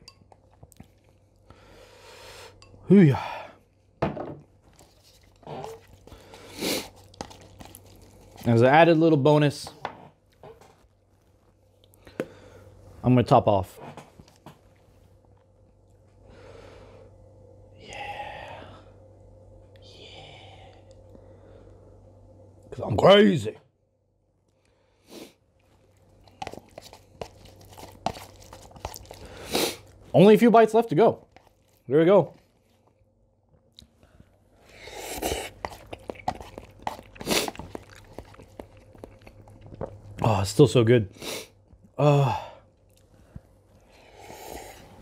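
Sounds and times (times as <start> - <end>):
chewing with mouth clicks: 0.1 - 1.3, 4.7 - 8.5, 25.6 - 30.0, 31.2 - 31.9, 34.9 - 40.2.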